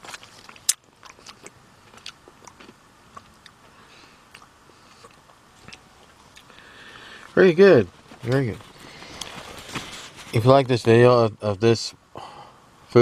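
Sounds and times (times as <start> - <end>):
wet chewing clicks and lip smacks: 0.0 - 3.6, 4.3 - 6.6.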